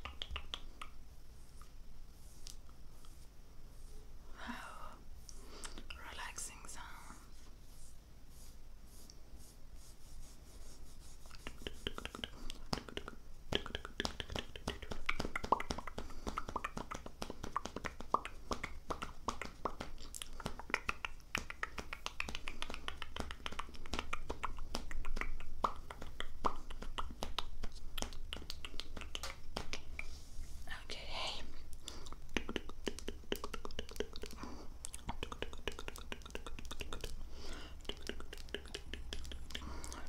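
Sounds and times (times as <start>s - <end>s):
wet lip and tongue clicks: 0.0s - 1.0s, 11.3s - 30.1s, 31.7s - 40.0s.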